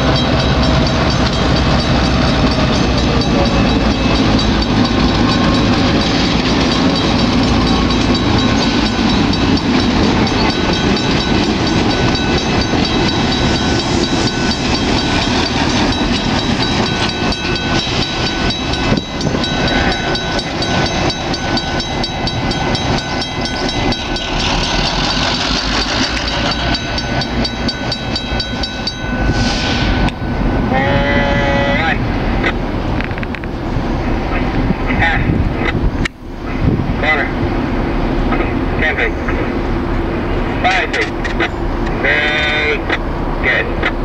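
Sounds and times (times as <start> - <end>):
train wheels clattering on rails: 0.0 - 30.7
diesel locomotives running past: 0.0 - 44.0.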